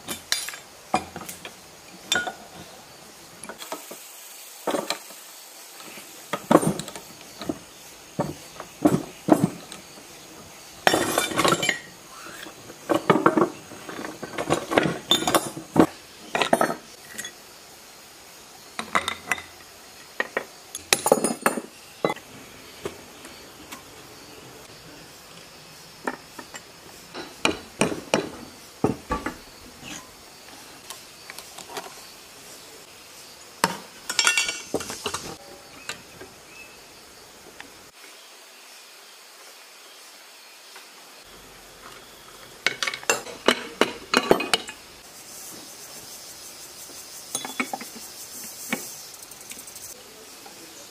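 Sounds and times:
metal tools clinking on engine: 10.8 - 11.9, 13.0 - 15.7, 20.8 - 22.3, 34.1 - 35.2, 47.3 - 48.0.

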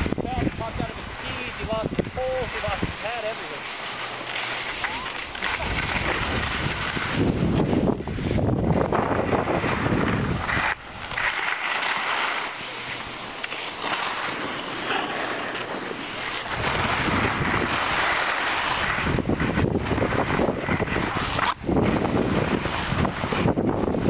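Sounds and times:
wind buffeting microphone: 0.0 - 3.3, 5.3 - 11.3, 15.7 - 24.0
skis sliding on snow: 0.0 - 24.0.

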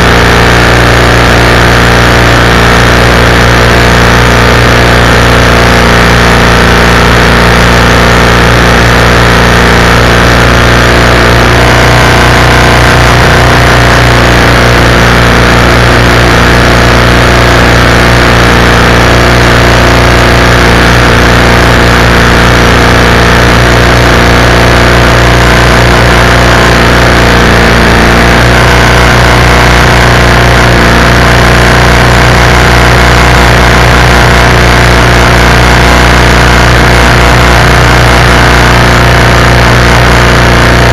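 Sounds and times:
single-cylinder engine running loudly: 0.0 - 40.9.

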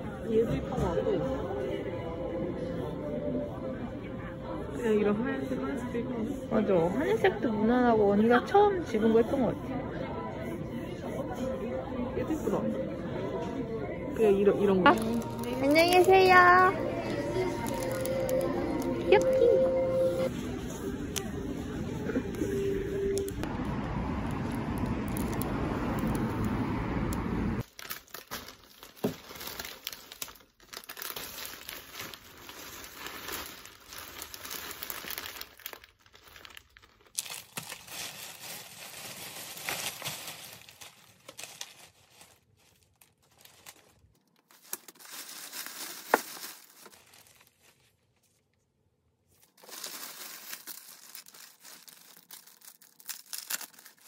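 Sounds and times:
outdoor street noise: 0.0 - 27.9
plastic bag crinkling: 14.8 - 19.6, 24.1 - 26.6, 27.6 - 48.4, 49.3 - 54.0.

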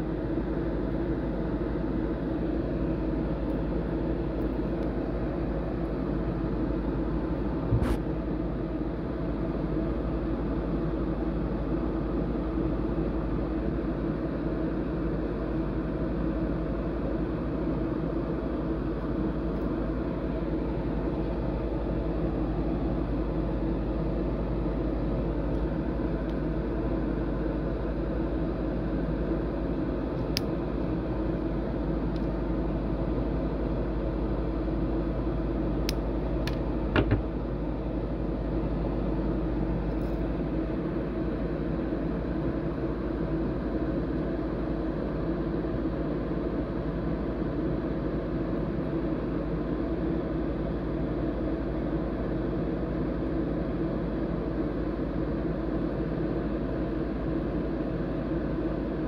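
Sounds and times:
ventilation humming: 0.0 - 59.0
short knock: 7.7 - 8.0, 37.0 - 37.3.

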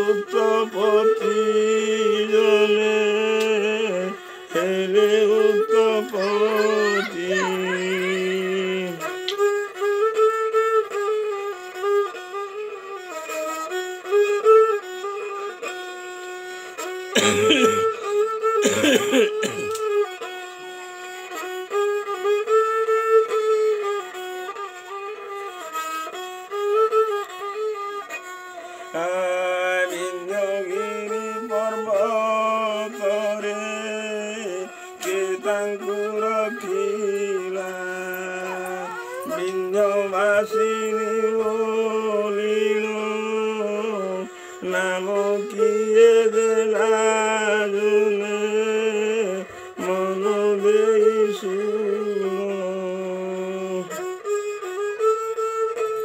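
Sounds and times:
bowed folk fiddle melody: 0.0 - 56.0.

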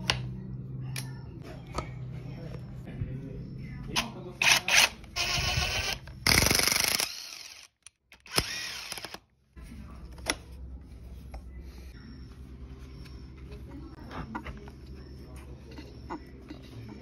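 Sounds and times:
power drill motor whine: 4.7 - 9.2.

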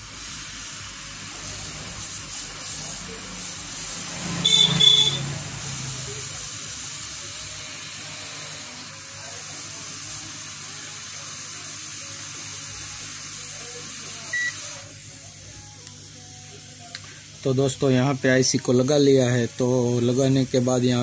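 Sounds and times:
hot air station hissing: 0.0 - 21.0
short electronic beep: 4.4 - 5.3, 14.3 - 14.6.

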